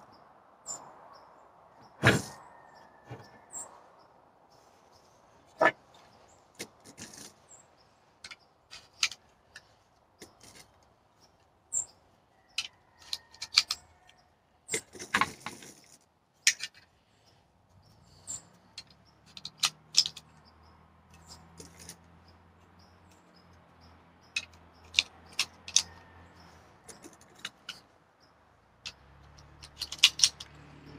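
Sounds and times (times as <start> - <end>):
cartridges clicking into magazine: 18.8 - 20.3, 28.9 - 30.5.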